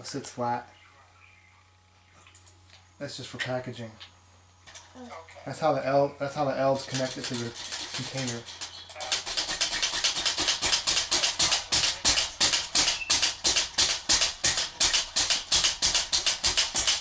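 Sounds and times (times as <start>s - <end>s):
rapid rattling scraping strokes: 6.8s - 17.0s.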